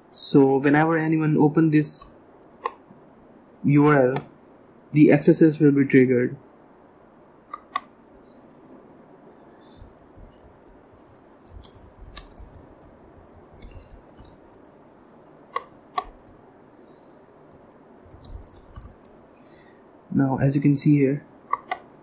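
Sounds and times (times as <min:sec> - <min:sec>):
mouse clicks: 0:07.5 - 0:07.9, 0:15.5 - 0:16.4, 0:21.5 - 0:21.9
faint keyboard typing: 0:09.3 - 0:14.8, 0:15.5 - 0:16.4, 0:17.4 - 0:19.5.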